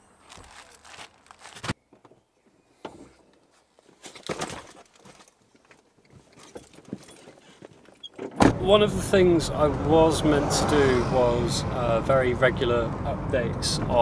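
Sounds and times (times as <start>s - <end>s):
clothing and bag rustling: 0.1s - 1.8s, 3.3s - 8.2s.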